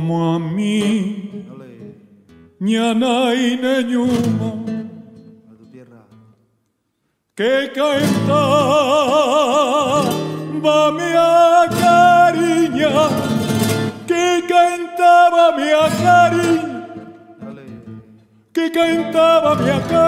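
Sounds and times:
man singing flamenco style: 0.0 - 2.0, 2.6 - 5.2, 7.4 - 20.0
acoustic guitar: 0.0 - 20.0.

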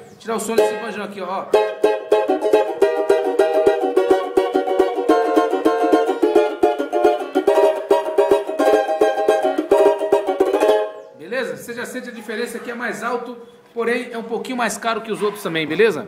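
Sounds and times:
banjo strummed chords: 0.5 - 11.0.

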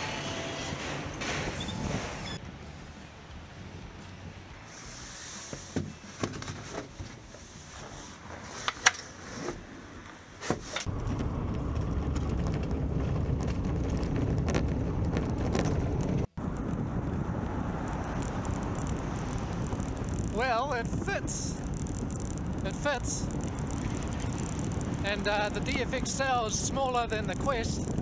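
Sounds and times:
velomobile rolling rumble: 10.8 - 28.0.

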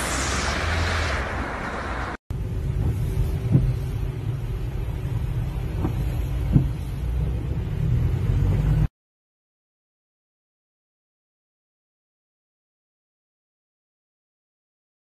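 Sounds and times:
car cabin rumble: 2.4 - 8.9.

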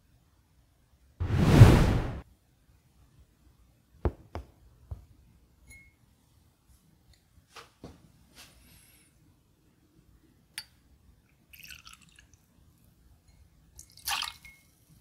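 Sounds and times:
liquid pouring into metal jigger: 11.5 - 12.4, 13.8 - 14.5
liquid splashing into glass: 11.5 - 12.4, 13.8 - 14.7.

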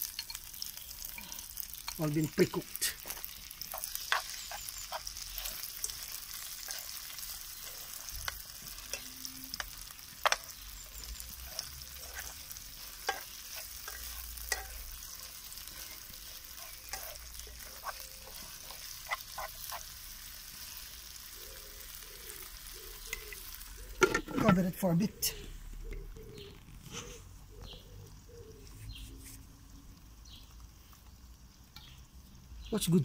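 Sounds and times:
meat and onion sizzling in oil: 0.0 - 33.0
spatula scraping a pan: 3.0 - 20.0.

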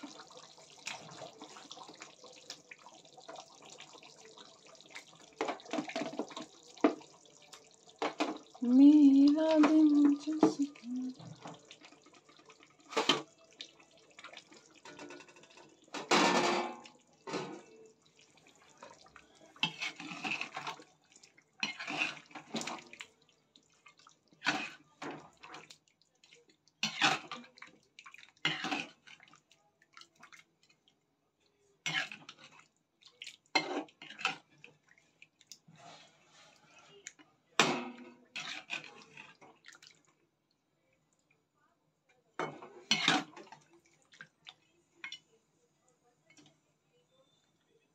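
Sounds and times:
curry bubbling and spluttering: 0.0 - 16.0, 16.8 - 31.0, 38.3 - 40.2
cookware clinking and scraping: 4.8 - 8.6, 9.5 - 13.4, 14.2 - 17.8, 18.7 - 20.9, 21.6 - 23.0, 24.4 - 25.7, 26.8 - 27.6, 28.4 - 29.3, 31.8 - 32.6, 33.5 - 34.7, 35.7 - 39.6, 42.4 - 43.7.

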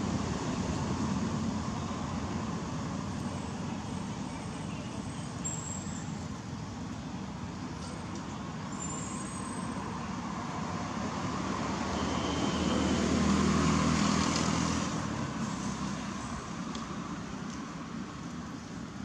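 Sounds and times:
steady road noise: 0.0 - 19.0
vehicle engine rumble: 0.0 - 19.0.

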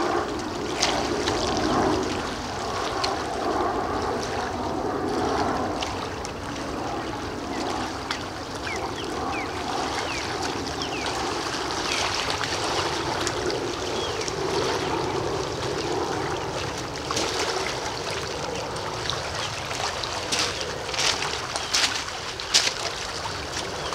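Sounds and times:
waves lapping on pebble shore: 8.8 - 23.9.

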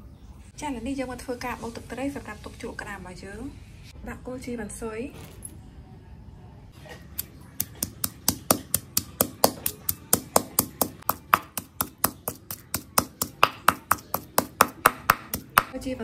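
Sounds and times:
pestle pounding in stone mortar: 7.2 - 15.8.

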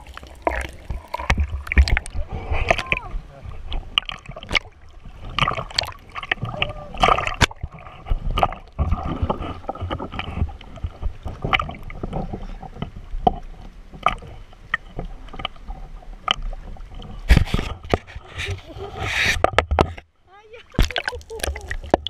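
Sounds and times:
water sloshing and splashing: 0.0 - 22.0
water knocking against camera: 20.6 - 22.0.

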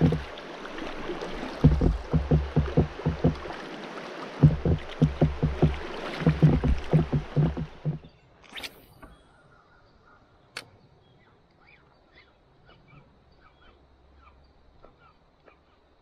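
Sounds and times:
hiss of moving water: 0.0 - 8.0
water slapping against kayak hull: 0.0 - 8.1.

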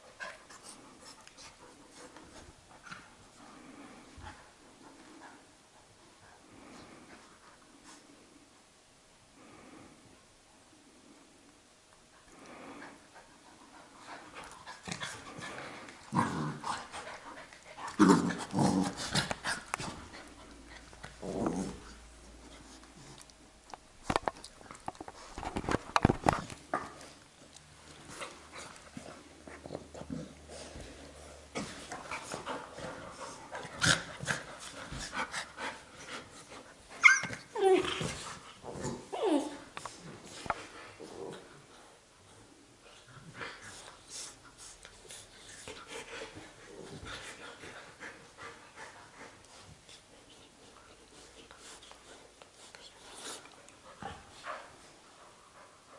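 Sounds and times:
dogs play-growling: 12.2 - 23.4, 24.0 - 55.9
dog panting: 31.6 - 36.8, 43.4 - 55.9
dog yelping: 37.0 - 37.7
dog whining: 37.0 - 38.1, 39.1 - 39.6.

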